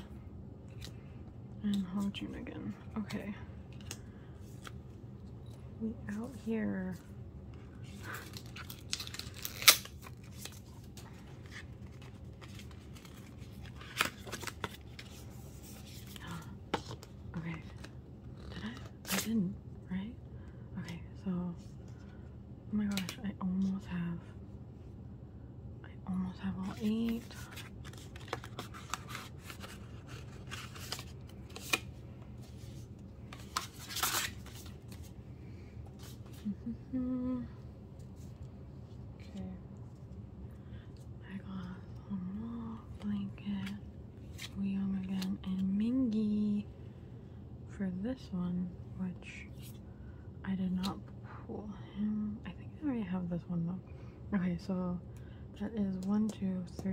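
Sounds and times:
packaging rustling: 0:26.7 - 0:35.1.

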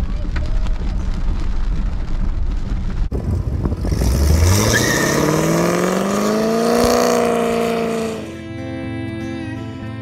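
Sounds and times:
car engine revving: 0:03.7 - 0:08.4.

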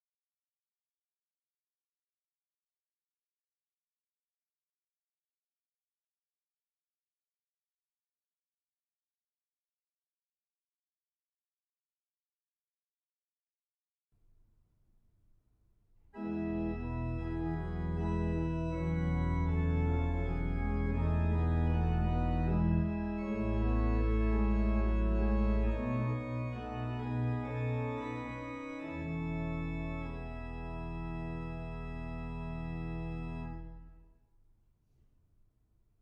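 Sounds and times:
pipe organ chords: 0:16.2 - 0:34.0.

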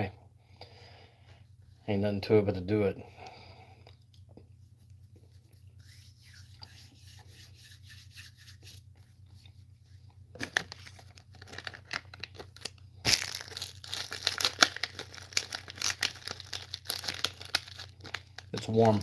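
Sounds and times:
candy wrapper crinkling and tearing: 0:10.4 - 0:19.0.

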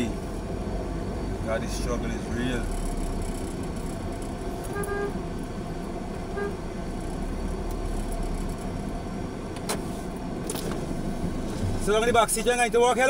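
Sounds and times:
car running in traffic: 0:00.0 - 0:13.0
car horn tooting: 0:04.6 - 0:05.2, 0:06.3 - 0:06.6.

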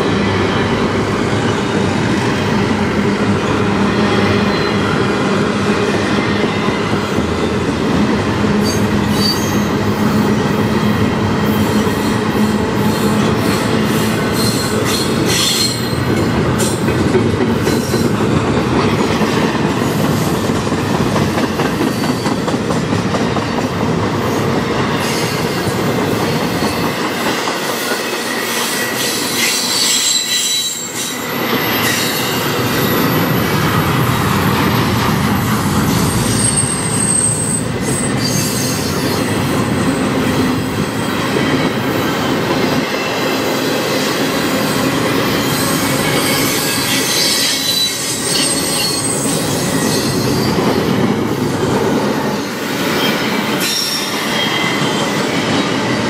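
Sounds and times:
steel wheels rumbling on rail: 0:00.0 - 0:56.0
high-pitched wheel squeals: 0:08.6 - 0:09.7, 0:28.4 - 0:32.3, 0:36.2 - 0:39.2, 0:45.4 - 0:50.2.

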